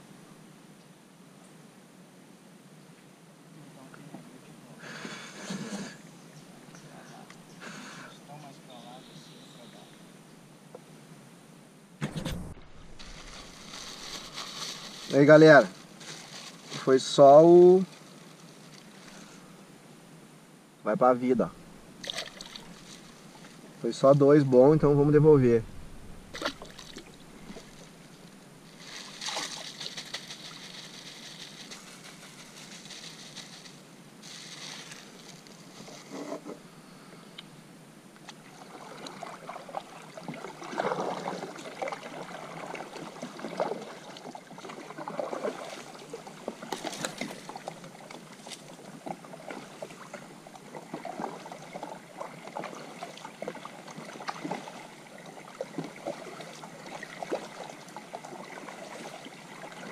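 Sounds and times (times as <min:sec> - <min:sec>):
paddle splashing in water: 0:12.0 - 0:15.2, 0:21.5 - 0:23.8, 0:24.8 - 0:31.4, 0:38.2 - 0:59.9.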